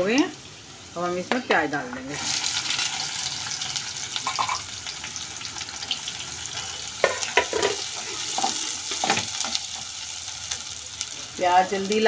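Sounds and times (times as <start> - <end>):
onions sizzling in oil: 0.0 - 12.0
metal spatula knocking pan: 4.2 - 4.6.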